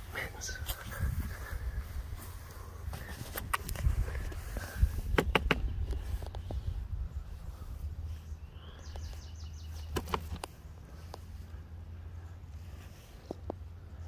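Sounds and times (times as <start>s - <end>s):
low outdoor rumble: 0.0s - 14.0s
faint bird chirping: 5.6s - 14.0s.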